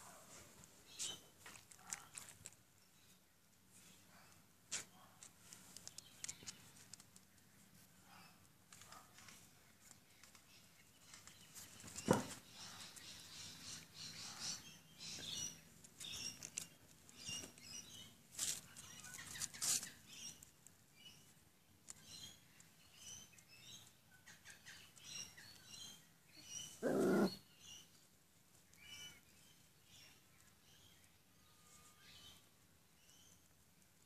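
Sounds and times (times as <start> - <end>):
puppies squeaking and whimpering: 26.7 - 27.4.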